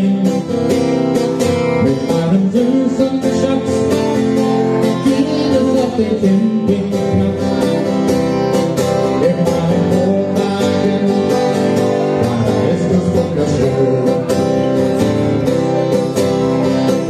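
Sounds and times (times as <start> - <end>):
acoustic guitar strumming: 0.0 - 17.0
person singing: 1.7 - 15.4.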